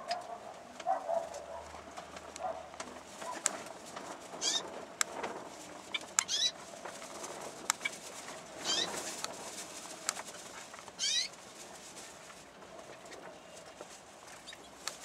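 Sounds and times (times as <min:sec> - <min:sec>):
cockatiel chirps: 0:06.2 - 0:06.5, 0:08.6 - 0:08.9, 0:11.0 - 0:11.3.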